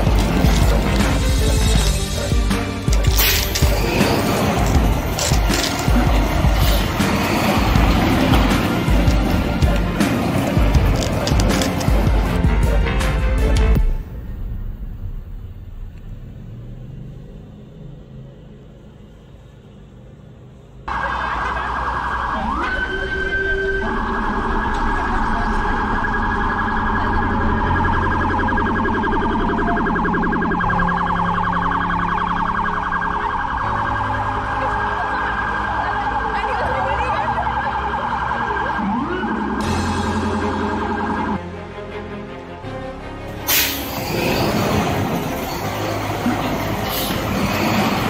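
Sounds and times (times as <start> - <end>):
police siren wailing: 0.0 - 12.8, 20.9 - 41.5
low rumble: 13.6 - 18.1.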